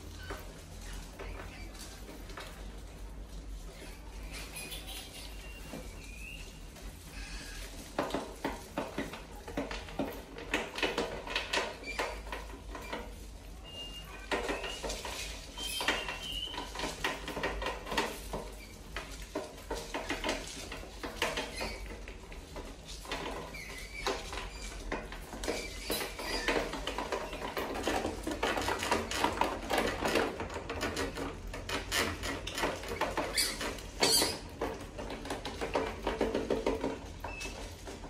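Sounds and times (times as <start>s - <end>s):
mice claws scratching on wire: 0.0s - 38.0s
mice squeaking: 3.7s - 7.7s, 11.8s - 16.8s, 21.4s - 21.9s, 23.5s - 24.8s, 25.4s - 27.6s, 32.9s - 34.5s.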